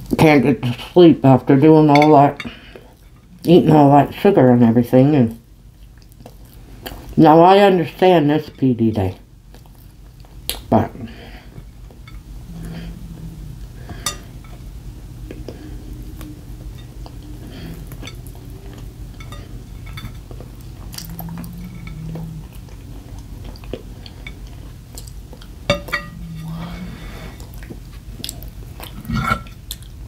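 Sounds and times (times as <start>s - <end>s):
chewing: 5.7s - 7.2s, 9.5s - 10.7s, 11.4s - 30.0s.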